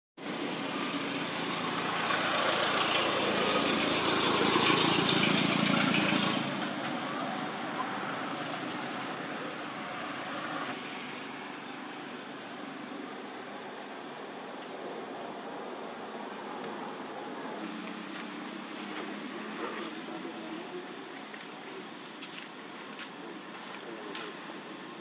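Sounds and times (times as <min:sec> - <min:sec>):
vehicle engine running: 0:00.2 - 0:14.5.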